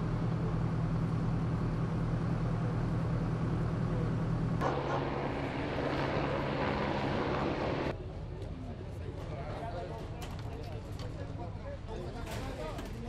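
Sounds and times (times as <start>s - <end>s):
low engine hum: 0.0s - 8.0s
distant voices: 2.0s - 13.0s
traffic noise: 3.0s - 8.6s.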